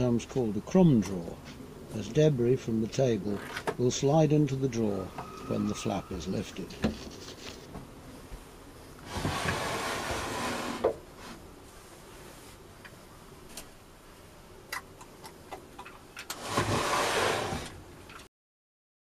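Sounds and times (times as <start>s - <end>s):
wooden drawer scraping on runners: 9.0s - 11.4s, 16.3s - 17.8s.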